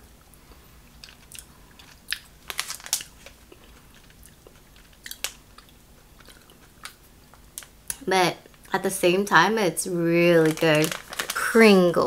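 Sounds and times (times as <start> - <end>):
gummy candy chewing: 1.0 - 7.0.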